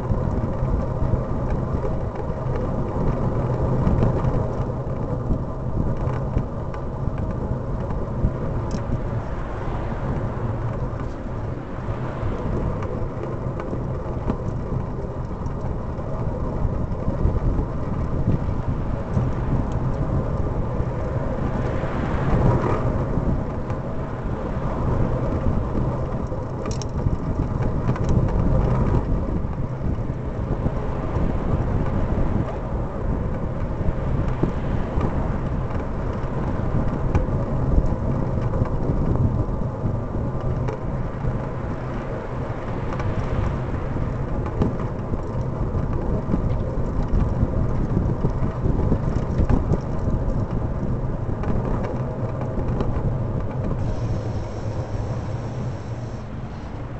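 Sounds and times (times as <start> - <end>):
wind and road noise: 0.0 - 56.9
cars passing: 6.9 - 16.0, 16.6 - 27.6, 50.8 - 56.9.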